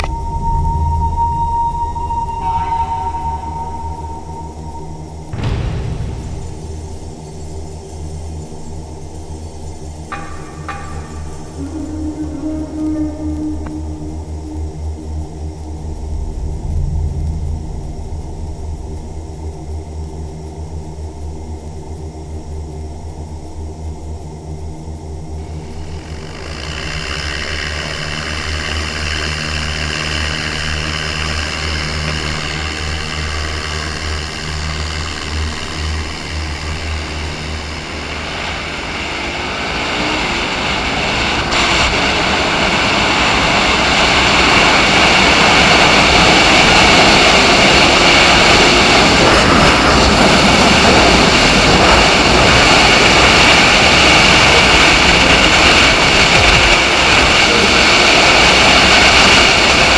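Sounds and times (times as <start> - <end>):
wind on microphone: 0.0 - 7.8, 11.4 - 21.5, 36.1 - 59.9.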